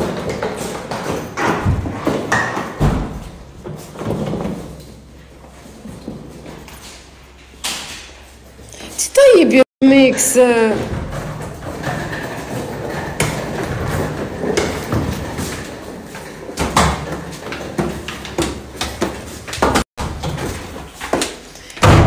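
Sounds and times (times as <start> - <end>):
sharp knocks and thumps: 0.0 - 4.7.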